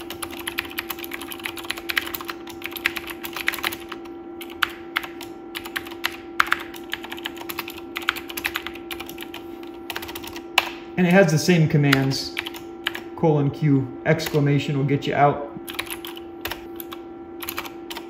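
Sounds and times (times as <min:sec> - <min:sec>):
keyboard keys clicking: 0:00.0 - 0:10.8, 0:15.7 - 0:18.0
steady hum: 0:00.0 - 0:18.0.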